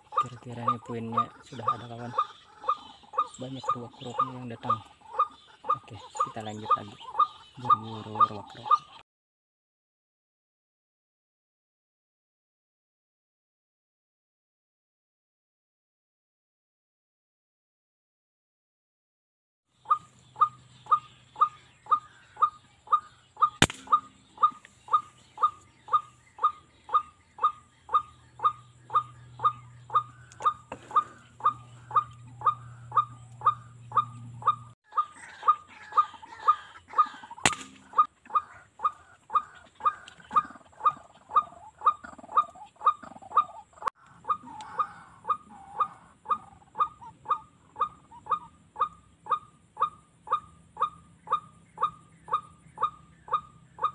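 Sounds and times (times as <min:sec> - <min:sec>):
bird calling short notes: 0:19.8 - 0:38.1
sharp clicks: 0:23.6 - 0:24.8, 0:37.4 - 0:38.1.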